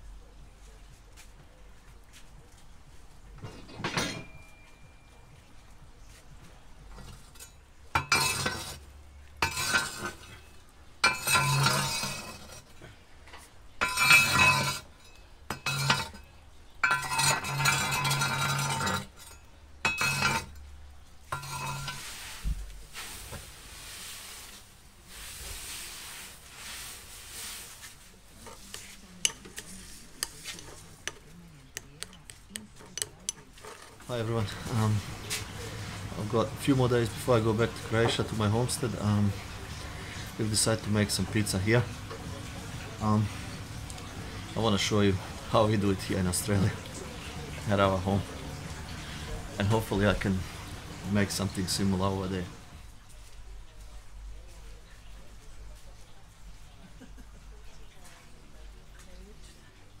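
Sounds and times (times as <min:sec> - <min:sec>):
metal spoon clinking ceramic bowl: 0:13.8 - 0:20.6.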